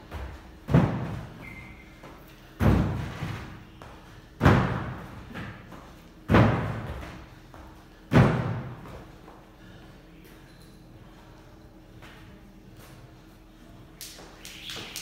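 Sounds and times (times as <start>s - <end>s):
heavy landing thuds on wood: 0.0s - 1.4s, 2.6s - 3.4s, 4.4s - 9.0s.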